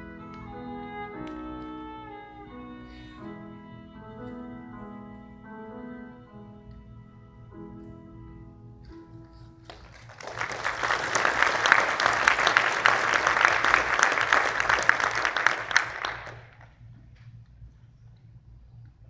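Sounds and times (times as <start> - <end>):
violin and piano notes: 0.0 - 9.7
audience applauding: 9.6 - 16.8.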